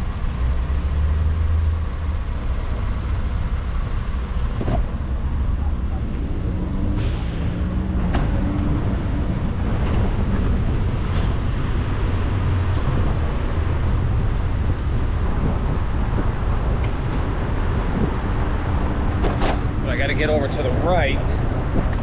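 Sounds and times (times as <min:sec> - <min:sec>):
street traffic: 0:00.0 - 0:22.0
wind rumble on microphone: 0:07.4 - 0:22.0.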